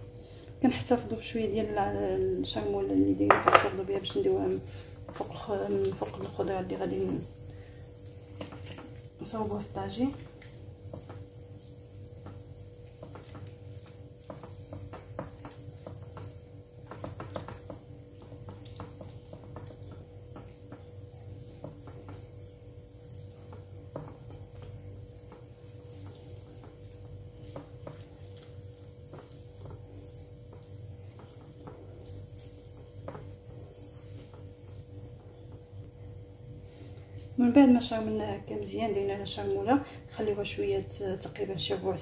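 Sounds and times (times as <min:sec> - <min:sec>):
hands squishing marinade into fish: 0:05.1 - 0:35.3.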